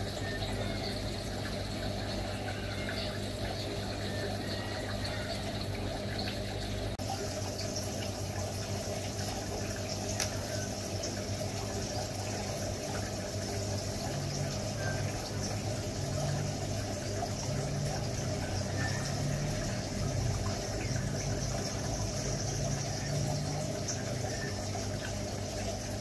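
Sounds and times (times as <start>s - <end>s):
water trickling: 0.0s - 26.0s.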